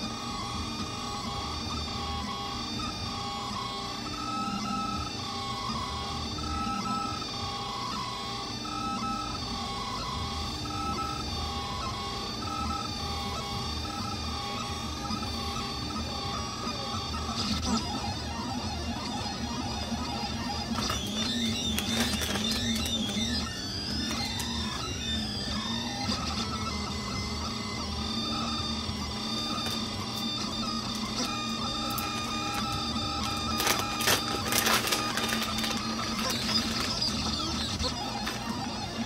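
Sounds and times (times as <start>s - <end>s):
stepper motors whining: 0.0s - 39.0s
fan whirring: 20.3s - 26.0s, 26.8s - 39.0s.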